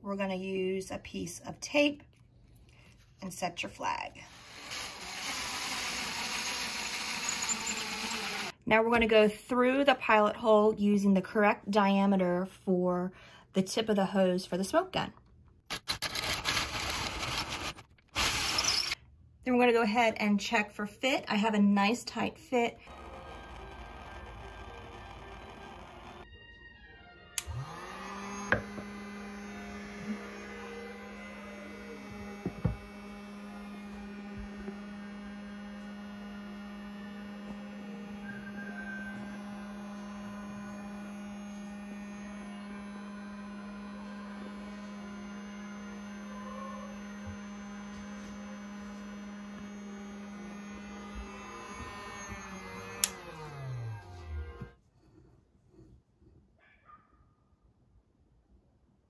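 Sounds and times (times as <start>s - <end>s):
fan motor humming: 22.8s - 26.3s, 27.4s - 54.8s.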